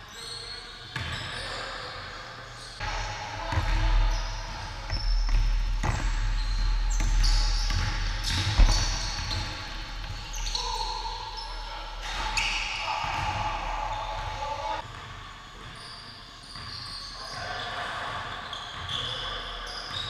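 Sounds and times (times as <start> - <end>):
sneakers squeaking: 0.0 - 14.8, 15.4 - 20.0
basketball bouncing on hardwood: 4.9 - 11.4
sharp knocks: 7.8 - 11.4.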